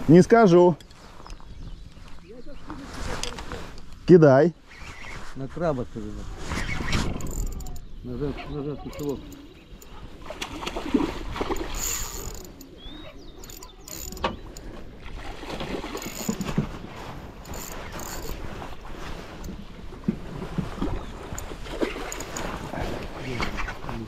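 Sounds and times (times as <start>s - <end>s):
fishing reel whirring and clicking: 6.8s - 7.9s, 8.9s - 9.9s, 11.4s - 12.8s, 13.4s - 14.8s, 15.8s - 16.6s, 17.4s - 18.5s, 21.3s - 22.6s
fish thrashing and splashing: 8.9s - 23.9s.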